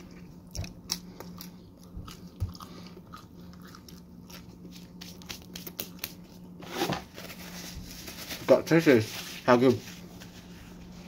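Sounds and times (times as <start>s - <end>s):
person chewing pizza: 0.0s - 6.6s
faint steady hum: 0.0s - 11.0s.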